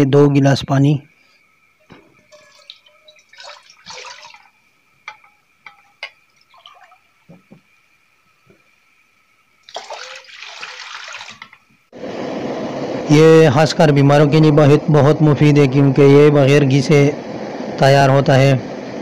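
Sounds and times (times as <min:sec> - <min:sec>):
water pouring into a pot: 0:02.2 - 0:07.2, 0:09.6 - 0:11.7.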